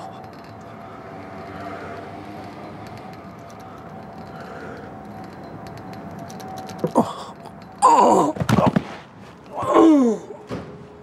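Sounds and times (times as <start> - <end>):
man grunting and groaning: 6.8 - 8.7, 9.5 - 10.4.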